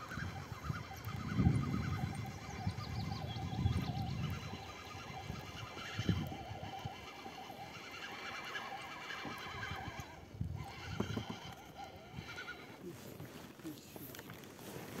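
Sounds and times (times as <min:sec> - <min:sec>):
frogs croaking: 0:00.0 - 0:10.1.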